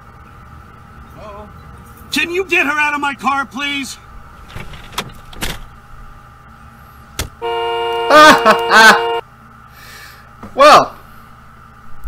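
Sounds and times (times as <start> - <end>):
car horn blaring: 7.4 - 9.3.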